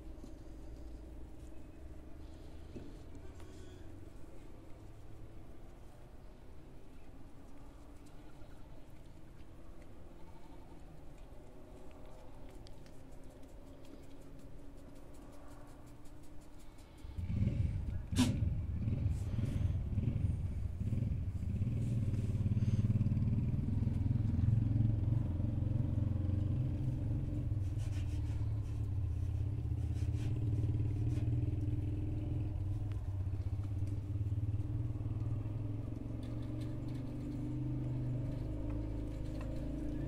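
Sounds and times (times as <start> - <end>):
engine humming: 16.6 - 40.0.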